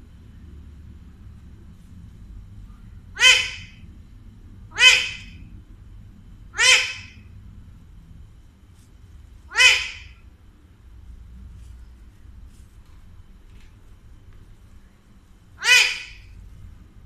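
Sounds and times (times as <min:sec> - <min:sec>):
parakeet squawking: 0:03.2 - 0:03.8, 0:04.7 - 0:05.4, 0:06.6 - 0:07.2, 0:09.5 - 0:10.2, 0:15.6 - 0:16.4.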